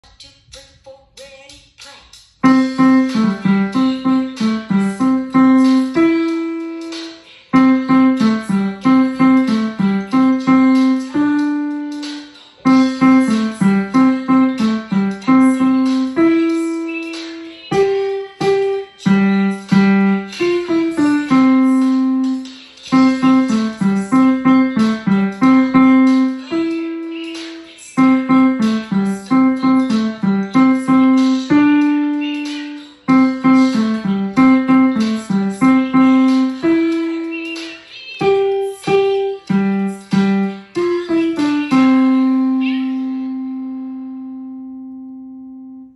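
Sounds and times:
digital piano melody: 2.4 - 45.9.

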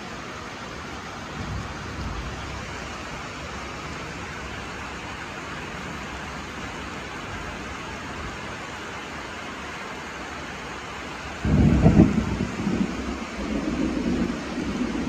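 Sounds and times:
steady rain: 0.0 - 15.0
thunder rumbling: 11.4 - 15.0.

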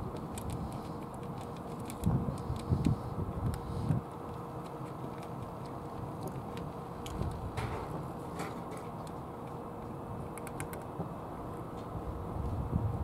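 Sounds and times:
cat chewing clicks: 0.1 - 3.6, 10.3 - 10.9.

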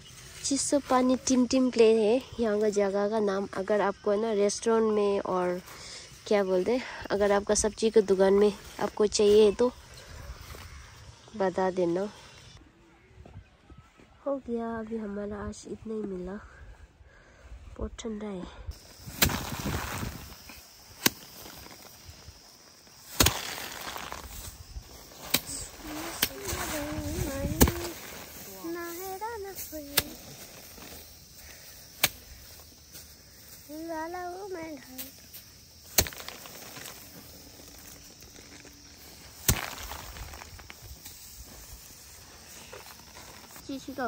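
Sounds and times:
straw rustling and grain scattering: 18.7 - 44.0
rice stalks thwacking: 18.8 - 33.6, 34.8 - 43.9
rice bundle thudding on stone: 23.1 - 24.3, 35.9 - 37.0, 39.4 - 40.7.

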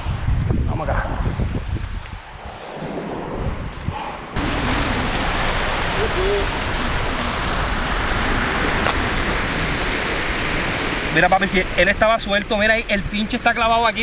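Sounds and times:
wind on microphone: 0.0 - 13.5
surf breaking on shore: 4.4 - 14.0.

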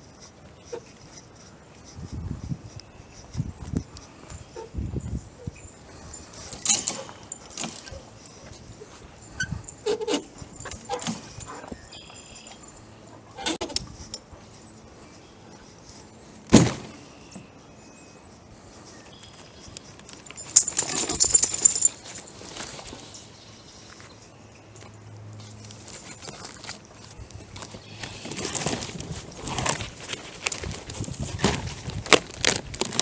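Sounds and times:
metallic jangling rattle: 4.4 - 14.3, 20.1 - 22.8.

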